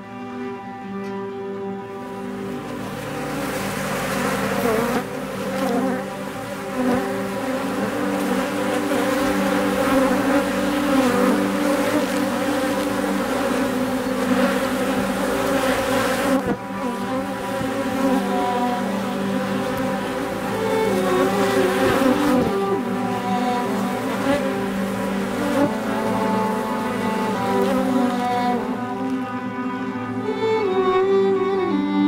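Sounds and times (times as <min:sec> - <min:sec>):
honeybees buzzing: 0:01.6 - 0:32.0.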